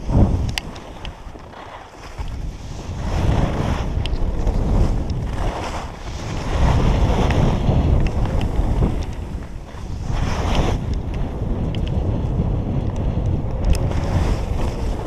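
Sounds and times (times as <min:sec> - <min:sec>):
wind buffeting microphone: 0:00.0 - 0:15.0
skis hissing over snow: 0:04.7 - 0:07.5.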